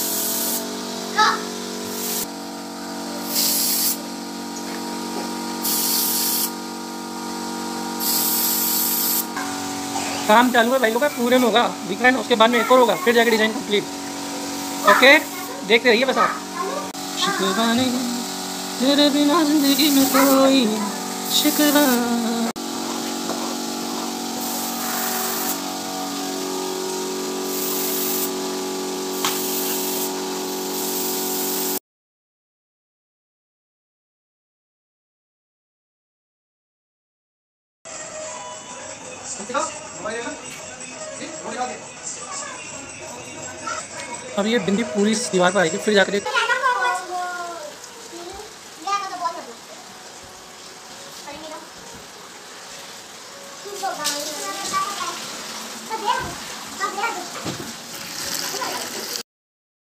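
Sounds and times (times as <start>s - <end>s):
paint spray gun hissing: 0.0s - 31.8s, 57.8s - 59.2s
steady machine hum: 0.0s - 31.8s.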